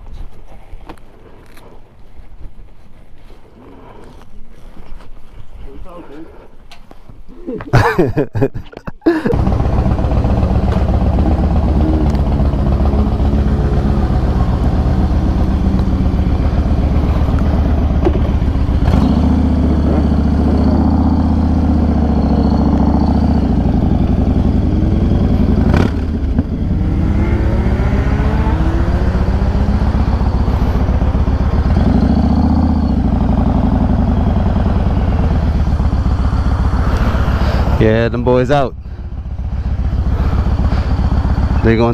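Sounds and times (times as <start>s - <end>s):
motorcycle engine accelerating: 9.3s - 41.9s.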